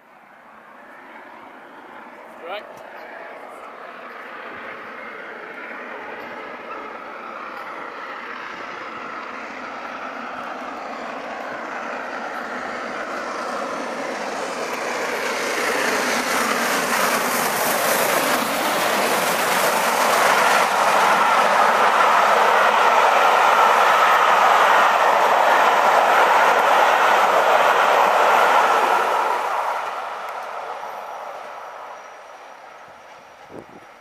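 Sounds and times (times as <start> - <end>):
steam locomotive approaching: 0.0 - 34.0
train wheels clattering over rails: 4.0 - 31.2.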